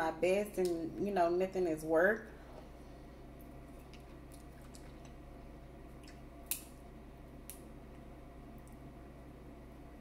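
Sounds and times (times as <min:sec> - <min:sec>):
steady low hum: 0:00.0 - 0:10.0
soft chewing: 0:02.5 - 0:05.3.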